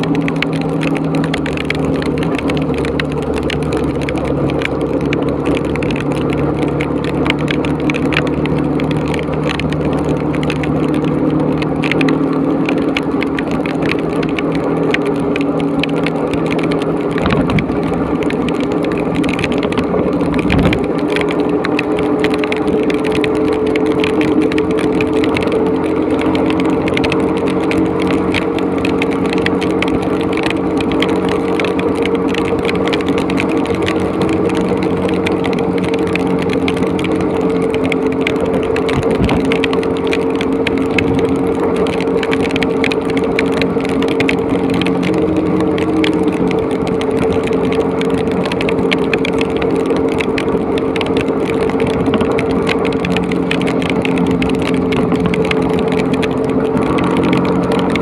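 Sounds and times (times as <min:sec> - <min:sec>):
heavy rain: 0:00.0 - 0:58.0
motorcycle engine running: 0:00.0 - 0:58.0
wind noise on microphone: 0:17.1 - 0:17.9, 0:19.2 - 0:21.0, 0:38.8 - 0:39.6.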